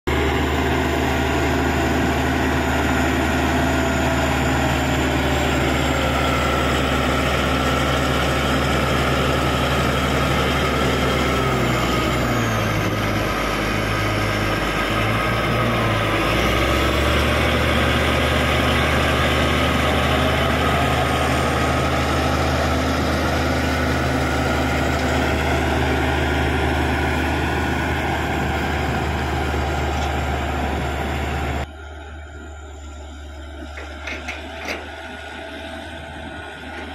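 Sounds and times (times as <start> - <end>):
bulldozer diesel engine running: 0.1 - 36.9
wavering high whine: 20.0 - 36.9.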